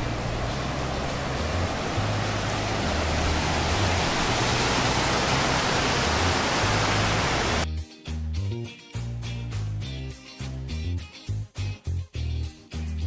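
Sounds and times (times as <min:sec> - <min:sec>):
water rushing over rocks: 0:00.0 - 0:07.6
bass background music: 0:00.0 - 0:13.0.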